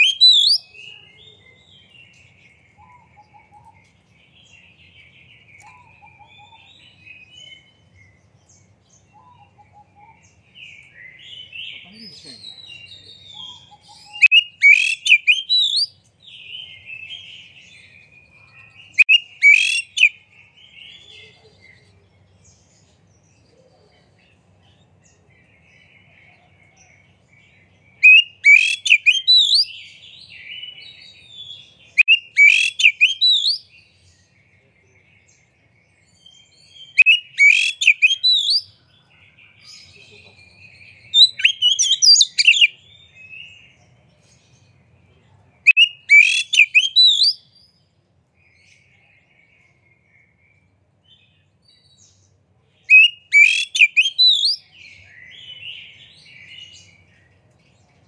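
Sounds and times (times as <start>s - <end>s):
bird singing whistled phrases: 0.0s - 1.4s, 12.3s - 16.0s, 18.2s - 20.2s, 28.0s - 29.8s, 32.0s - 33.7s, 36.8s - 38.7s, 40.6s - 43.5s, 45.7s - 47.6s, 52.9s - 56.8s
soft bird twittering: 0.0s - 47.8s, 48.4s - 57.4s.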